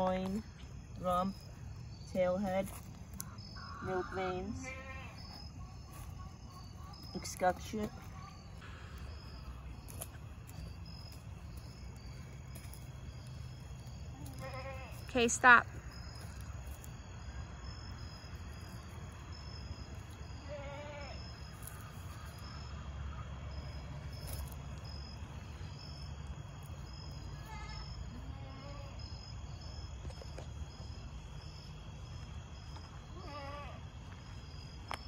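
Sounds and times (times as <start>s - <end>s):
insects chirping: 0.0s - 35.0s
faint goat bleats: 14.1s - 15.0s.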